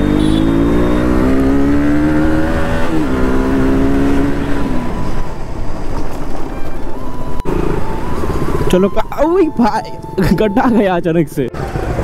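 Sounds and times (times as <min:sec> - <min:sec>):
motorcycle engine revving: 0:00.0 - 0:06.2, 0:07.4 - 0:08.8, 0:11.5 - 0:12.0.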